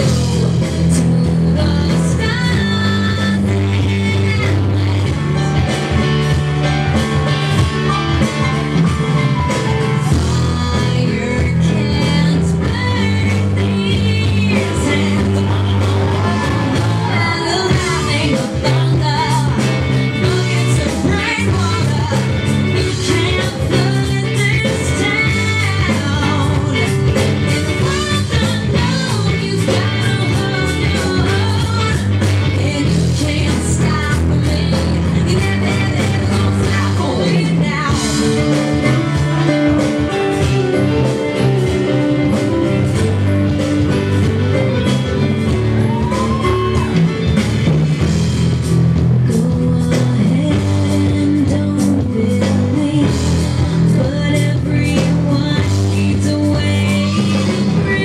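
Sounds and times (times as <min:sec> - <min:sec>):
rock song over sound system: 0:00.0 - 0:58.0.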